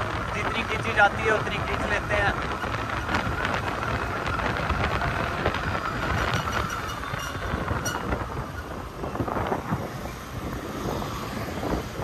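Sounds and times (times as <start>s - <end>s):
scooter engine and road noise: 0.0s - 12.0s
wind rumble on microphone: 0.0s - 12.0s.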